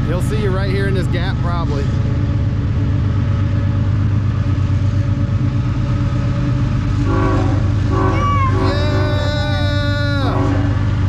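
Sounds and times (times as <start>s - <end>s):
diesel locomotive rumbling: 0.0s - 11.0s
train air horn blasts: 7.0s - 11.0s.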